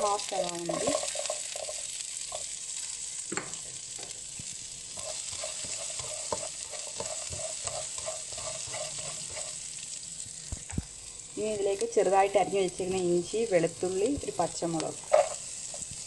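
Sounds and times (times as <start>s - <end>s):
onion sizzling in hot oil: 0.0s - 16.0s
spatula scraping and tapping pan: 0.6s - 2.6s, 3.3s - 9.8s, 13.7s - 16.0s.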